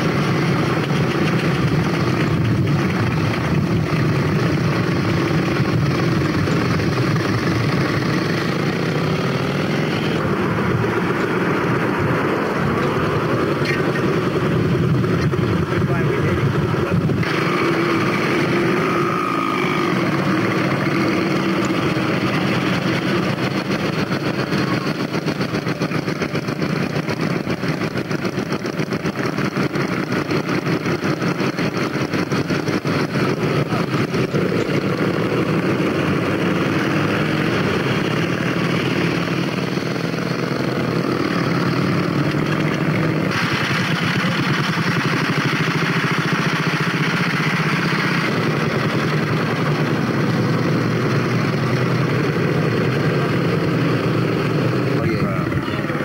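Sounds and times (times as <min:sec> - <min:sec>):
motorcycle engines running: 0:00.0 - 0:56.0.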